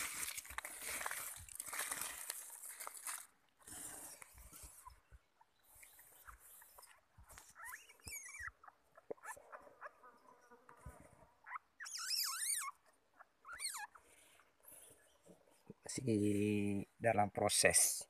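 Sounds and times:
animal squealing: 7.5 - 10.0, 11.4 - 12.8, 13.4 - 14.0.

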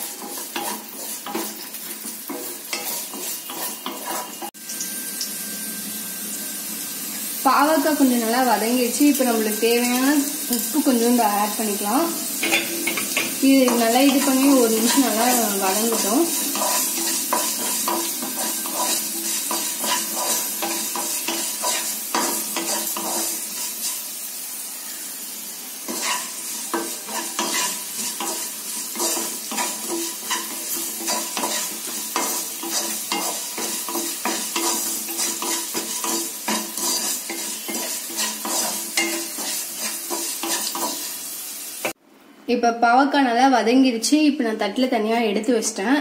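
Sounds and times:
wooden spatula scraping a pan: 0.0 - 4.6, 12.5 - 24.1, 25.9 - 41.3
vegetables sizzling in hot oil: 0.0 - 42.0.

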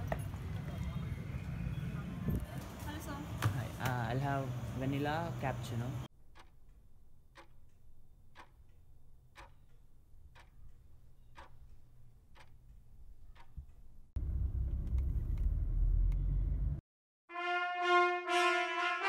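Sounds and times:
clock ticking: 6.2 - 13.8
car driving rumble: 14.2 - 16.8.

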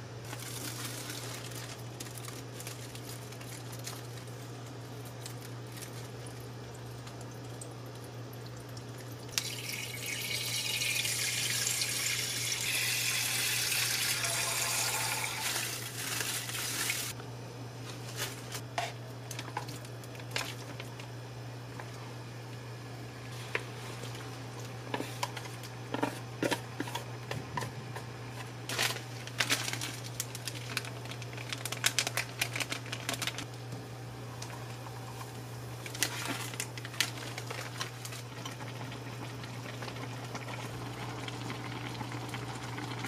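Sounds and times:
plastic packet crinkling: 0.2 - 6.4, 15.0 - 17.1, 28.6 - 33.5, 35.8 - 38.6
steady low hum: 17.1 - 43.0.

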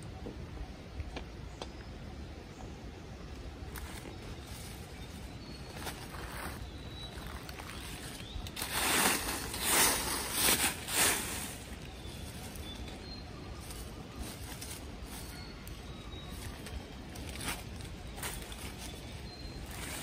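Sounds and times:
hand pushing through dry leaves: 3.7 - 15.4.

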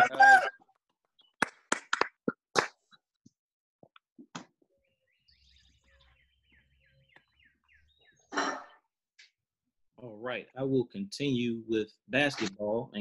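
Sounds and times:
sharp claps: 1.3 - 2.9
bird chirping: 4.6 - 8.9.

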